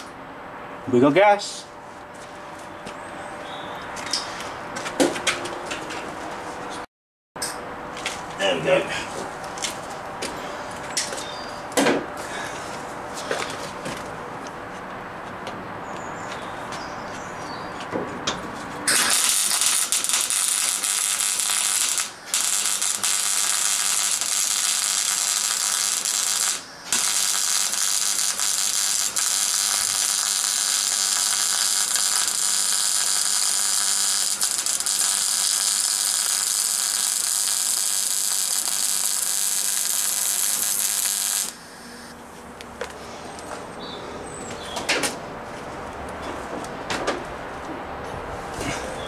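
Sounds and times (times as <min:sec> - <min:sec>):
welding arc crackling: 0:18.9 - 0:42.1.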